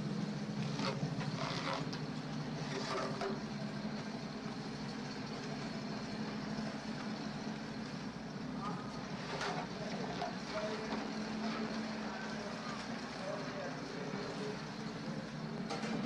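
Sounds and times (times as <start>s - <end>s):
truck engine running: 0.0s - 16.0s.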